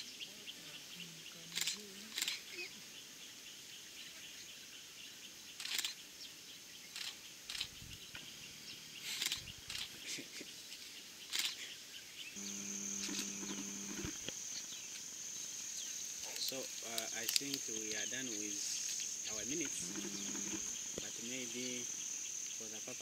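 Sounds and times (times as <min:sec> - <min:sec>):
high insect trill: 0:00.0 - 0:23.0
insects trilling: 0:00.0 - 0:23.0
sharp snaps or rustles: 0:01.5 - 0:02.5, 0:05.6 - 0:06.0, 0:06.9 - 0:08.3, 0:09.0 - 0:10.2, 0:11.3 - 0:11.7, 0:16.2 - 0:18.0
low steady hum: 0:12.4 - 0:14.8, 0:19.3 - 0:22.1.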